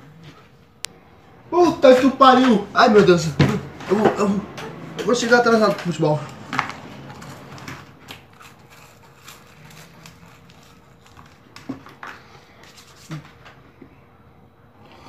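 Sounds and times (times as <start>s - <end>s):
person chewing crackers: 6.3s - 13.2s.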